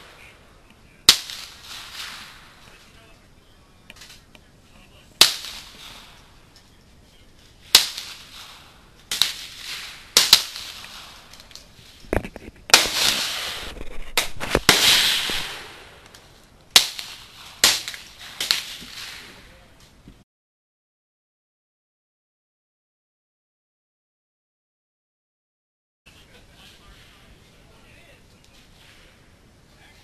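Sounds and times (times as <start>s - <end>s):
rifle shots with echo: 1.0s - 2.7s, 5.2s - 6.3s, 7.7s - 11.5s, 14.6s - 16.1s.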